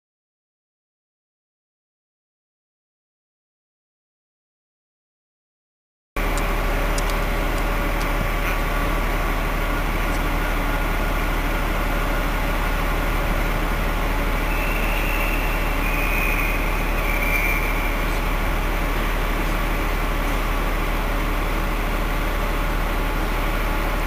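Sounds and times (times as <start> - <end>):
high whine: 6.2 - 24.0
train diesel engine drone: 6.2 - 24.0.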